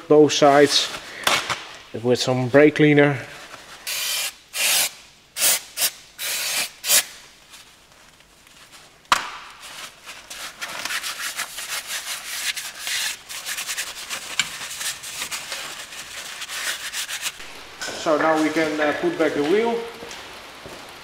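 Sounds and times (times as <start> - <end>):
aerosol spray hissing: 3.9 - 7.2
paper towel rubbing metal: 9.6 - 17.4.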